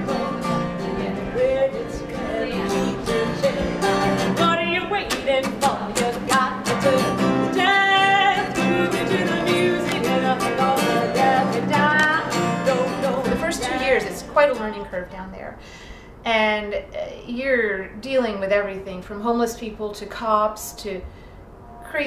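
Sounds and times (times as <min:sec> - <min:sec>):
strummed acoustic guitar: 0:00.0 - 0:15.2
woman singing high: 0:00.9 - 0:15.1.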